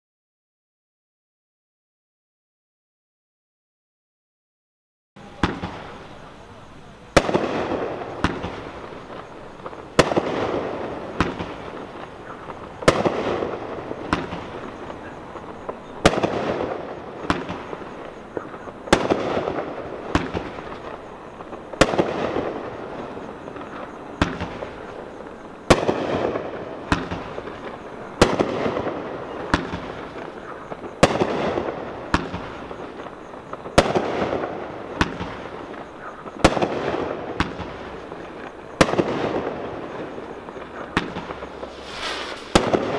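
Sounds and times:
firework reports: 5.2 - 42.9.

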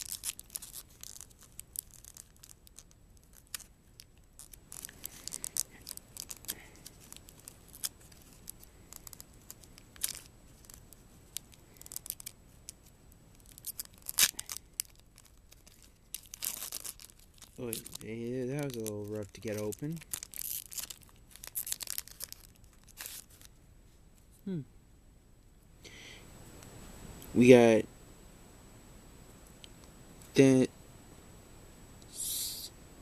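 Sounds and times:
foil wrapper crinkling and tearing: 0.0 - 23.6.

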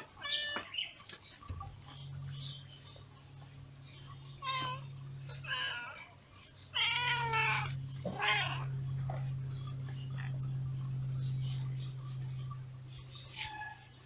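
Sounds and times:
cat meowing: 6.7 - 8.7, 13.4 - 13.9.

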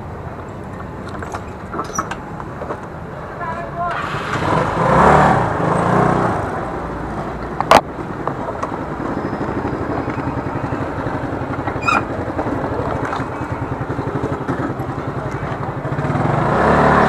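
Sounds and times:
motorcycle engine putter: 0.5 - 2.9.

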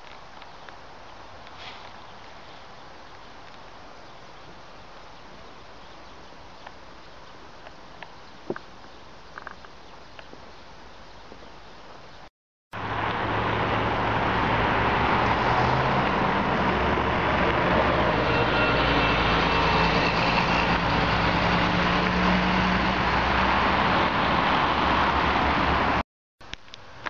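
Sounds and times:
bus driving past: 12.8 - 26.0
cars driving past: 12.8 - 26.0.

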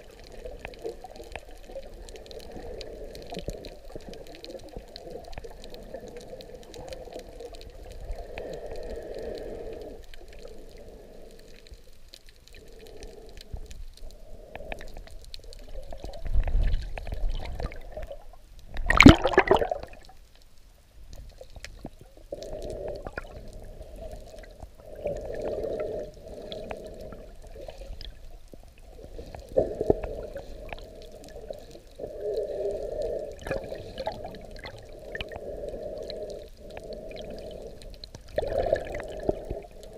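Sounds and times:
muffled underwater sloshing: 0.0 - 39.9
loud splash with bubbles: 18.9 - 20.0.

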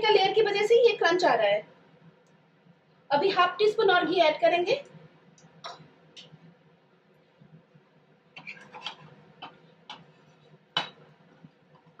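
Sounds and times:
ghee crackling and popping: 8.3 - 12.0.

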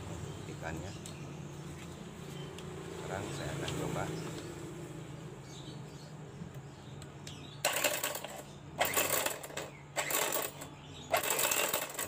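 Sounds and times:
electric hand mixer grating gears: 7.7 - 12.0.

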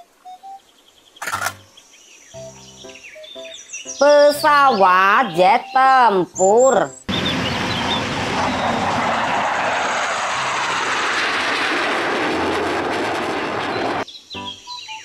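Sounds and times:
jet engines roaring past: 7.1 - 14.0.

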